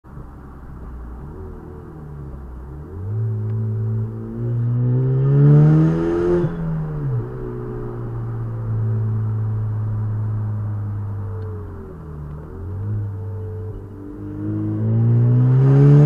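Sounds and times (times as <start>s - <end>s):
car exhaust accelerating: 0.0s - 16.0s.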